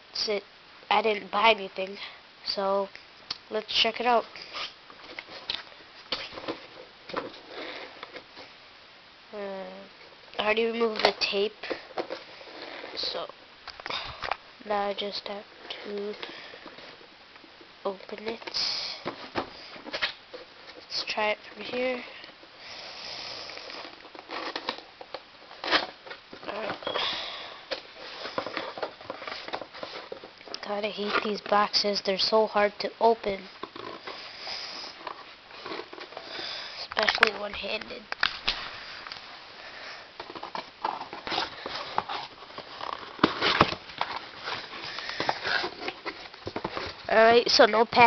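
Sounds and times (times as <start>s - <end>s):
cardboard cracking: 40.2s - 47.1s
cardboard flaps scraping and rustling: 40.2s - 47.3s.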